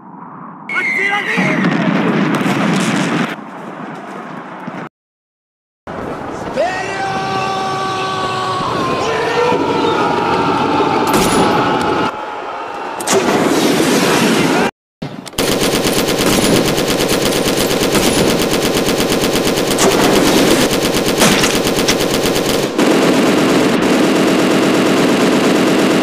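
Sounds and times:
machine-gun fire: 0:15.4 - 0:26.0.

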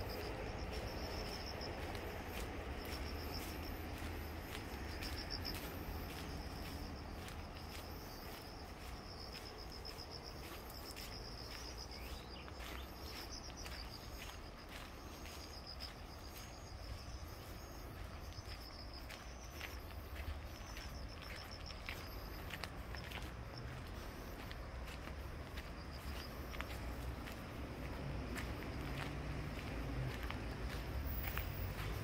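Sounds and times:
steady low rumble: 0:00.0 - 0:12.3
insects chirping in pulses: 0:00.0 - 0:32.0.

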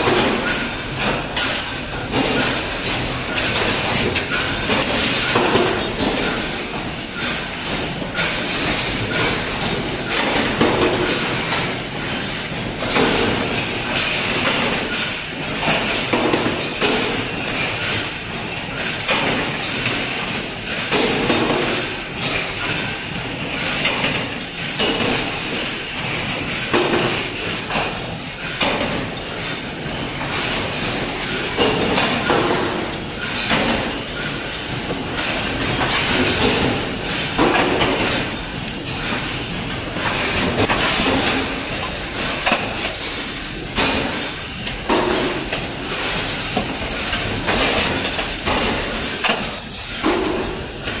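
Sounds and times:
metallic clanks and knocks: 0:20.7 - 0:51.0.

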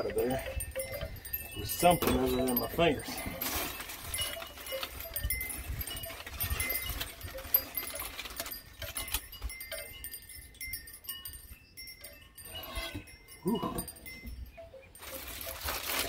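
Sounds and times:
aluminium foil crinkling: 0:00.0 - 0:10.3, 0:15.0 - 0:16.0.

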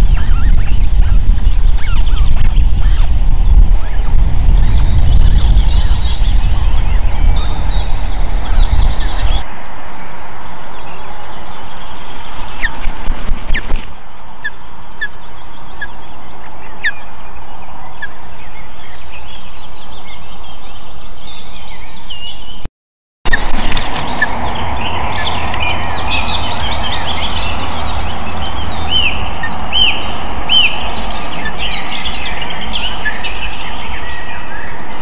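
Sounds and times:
ospreys chirping: 0:00.0 - 0:09.5, 0:23.3 - 0:35.0
wind rumbling on microphone: 0:00.0 - 0:22.7, 0:23.3 - 0:35.0.

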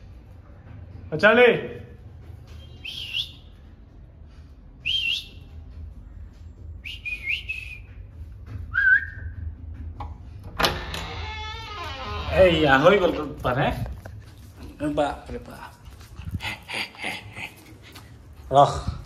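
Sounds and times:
man whistling rising whistles: 0:08.7 - 0:09.4.

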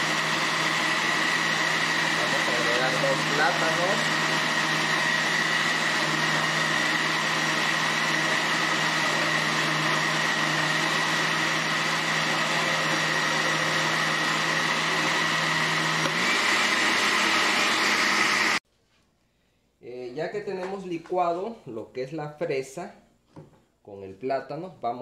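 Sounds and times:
electric blender running: 0:00.0 - 0:18.6.

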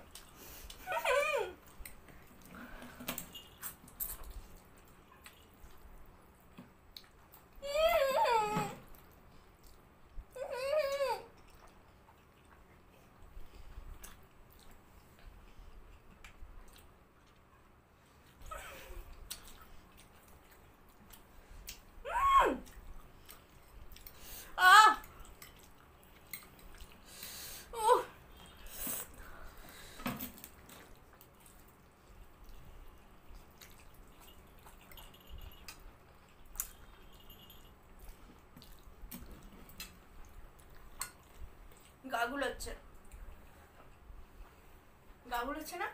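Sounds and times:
people chewing noodles: 0:08.8 - 0:42.0
people slurping and chewing noodles: 0:28.4 - 0:35.1.

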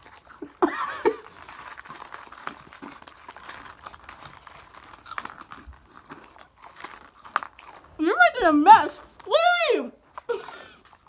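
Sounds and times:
cereal crunching and chewing: 0:00.0 - 0:11.0.

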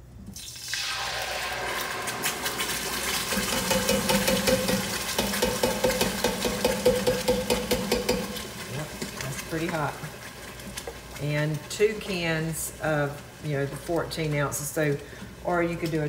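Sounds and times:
tomato puree pouring: 0:00.4 - 0:09.3
hot oil sizzling and spattering: 0:00.4 - 0:11.6.

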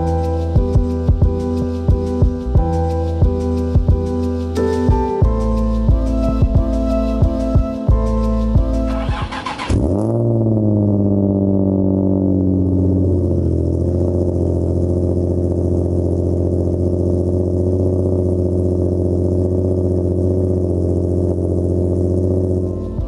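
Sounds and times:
car engine starting and idling: 0:00.0 - 0:23.0.

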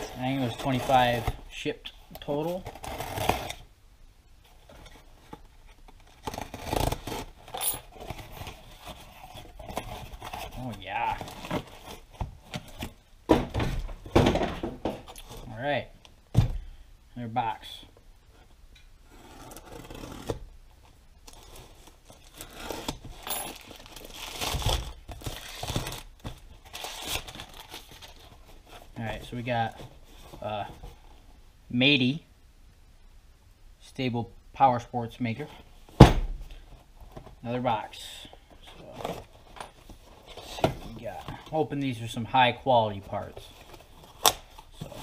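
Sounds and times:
cardboard scraping and tearing: 0:00.0 - 0:01.6, 0:02.4 - 0:03.6, 0:06.0 - 0:13.0, 0:19.1 - 0:20.5
plastic wrapping crinkling and tearing: 0:21.2 - 0:28.2.

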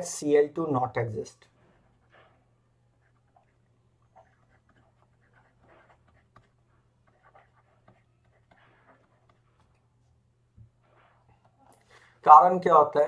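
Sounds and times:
stylus scratching on tablet: 0:01.5 - 0:10.1, 0:10.8 - 0:11.7.

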